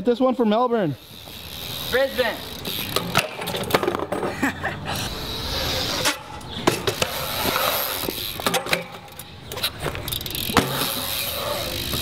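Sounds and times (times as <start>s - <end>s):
bike tyres rolling on concrete: 0.0s - 12.0s
bike landing clacks and knocks: 2.8s - 4.4s, 6.1s - 12.0s.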